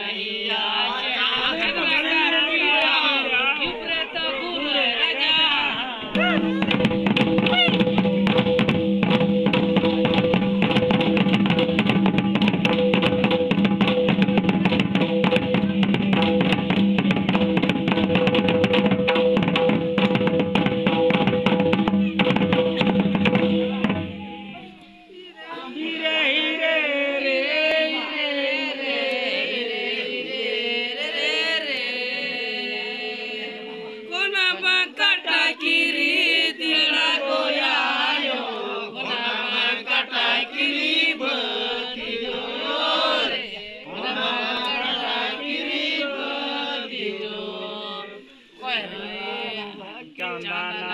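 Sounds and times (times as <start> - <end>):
group of voices chanting: 0.0 - 8.3, 21.9 - 50.9
hand drums beating: 6.1 - 24.6
kettledrum beaten with stick: 6.2 - 24.5.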